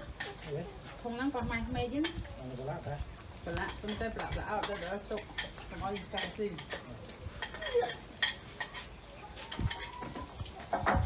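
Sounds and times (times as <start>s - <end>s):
cat eating from a ceramic plate: 3.0s - 10.6s.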